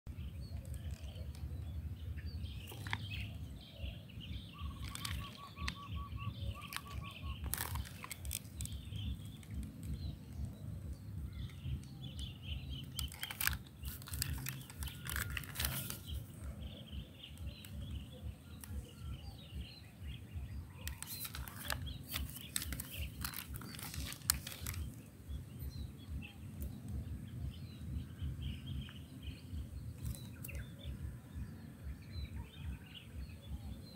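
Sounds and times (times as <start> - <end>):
birds chirping: 0.1 - 33.9
bird trill: 2.2 - 9.6.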